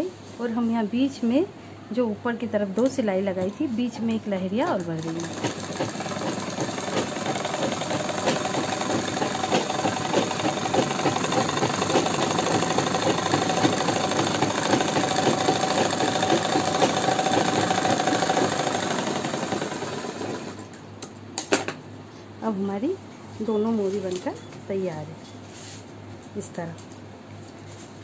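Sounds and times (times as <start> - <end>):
sewing machine stitching: 4.7 - 20.7.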